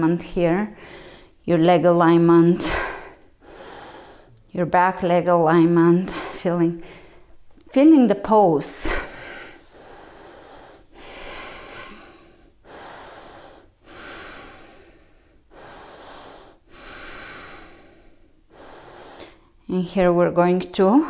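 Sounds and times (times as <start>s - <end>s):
woman breathing deeply: 0.8s - 1.4s, 2.6s - 4.4s, 6.1s - 7.5s, 8.8s - 19.6s.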